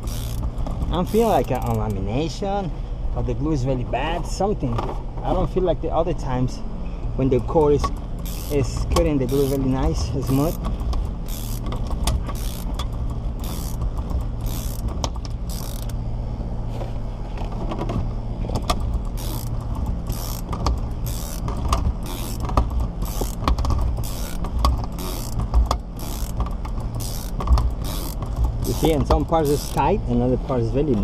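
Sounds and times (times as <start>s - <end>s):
ratcheting winder strokes: 0.0s - 2.0s, 7.7s - 16.0s, 18.6s - 30.0s
steady low hum: 0.0s - 31.0s.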